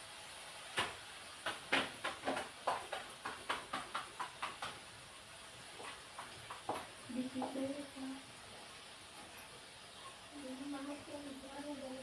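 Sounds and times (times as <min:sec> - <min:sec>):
rolling pin tapping on a board: 0:00.8 - 0:04.8.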